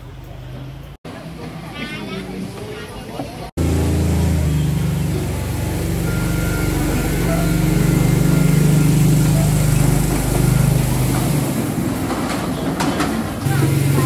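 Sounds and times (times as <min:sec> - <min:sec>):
small engine droning: 0:03.6 - 0:12.1, 0:13.4 - 0:14.0.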